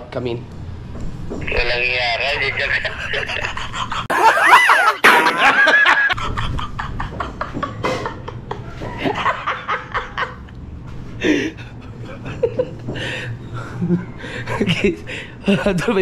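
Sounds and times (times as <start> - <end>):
people laughing and chuckling: 2.4 - 10.5, 11.2 - 14.9.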